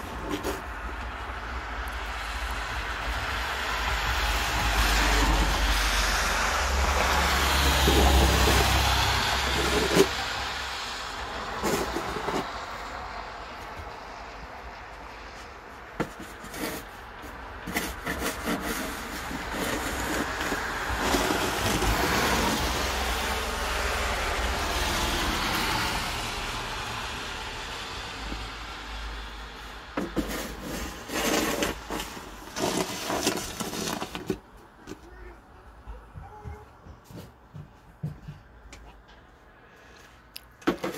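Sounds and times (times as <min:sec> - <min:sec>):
snow shovel scraping pavement: 0:00.0 - 0:01.2, 0:02.2 - 0:13.0, 0:15.2 - 0:34.5
tyres hissing on wet road: 0:01.6 - 0:15.3, 0:18.2 - 0:33.8.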